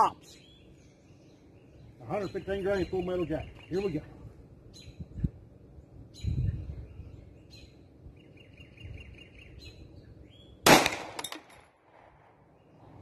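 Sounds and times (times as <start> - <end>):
pistol shot: 10.6 - 12.2.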